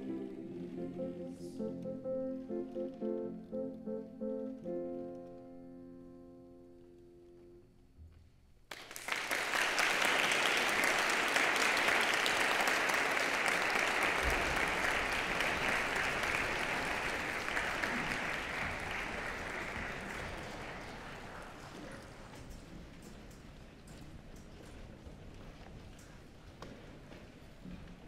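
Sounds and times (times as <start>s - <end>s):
piano chord: 0.0s - 7.8s
audience applause: 8.7s - 22.2s.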